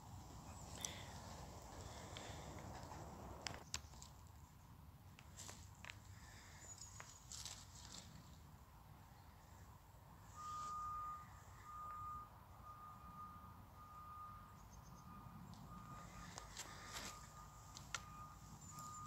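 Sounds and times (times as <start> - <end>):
vehicle reversing alarm beeping: 0.1 - 3.4, 10.1 - 19.0.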